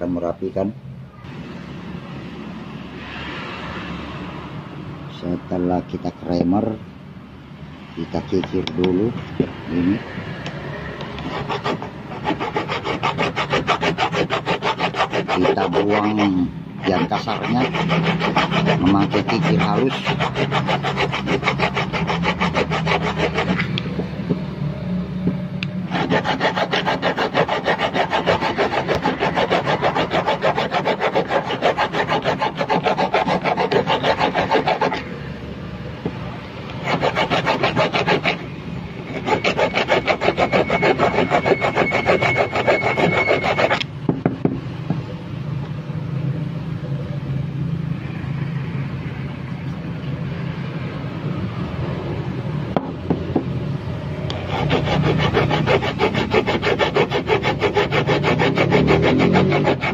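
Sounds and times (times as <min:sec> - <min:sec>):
file rasping on metal: 0:09.7 - 0:24.4, 0:25.8 - 0:35.4, 0:36.0 - 0:44.3, 0:54.2 - 0:59.9.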